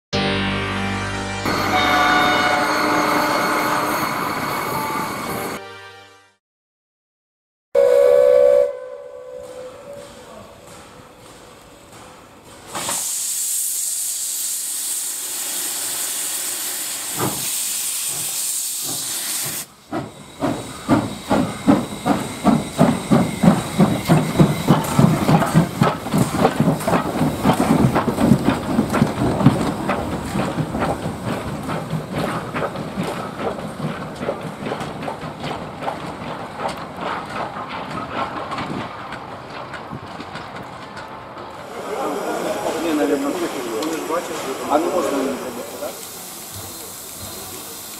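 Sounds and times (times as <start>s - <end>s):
steam locomotive exhaust chuffs: 7.8s - 40.2s, 41.6s - 47.9s
steam hissing: 9.4s - 33.3s, 41.6s - 47.9s.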